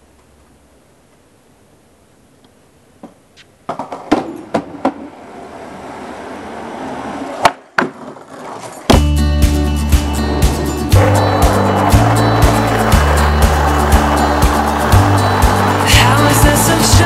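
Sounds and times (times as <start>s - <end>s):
skateboard tail popping: 2.4s - 5.5s, 6.9s - 9.2s, 10.3s - 15.9s
skateboard clacking on concrete: 3.0s - 5.3s, 7.3s - 9.0s, 11.0s - 17.0s
skateboard wheels rolling: 3.0s - 9.3s, 10.0s - 17.0s.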